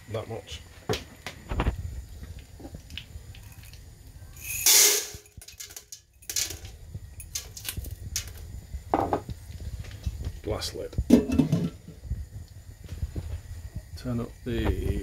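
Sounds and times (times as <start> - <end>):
popcorn kernels pouring into pot: 4.4 - 5.6
kernels clicking against pot: 4.4 - 8.4.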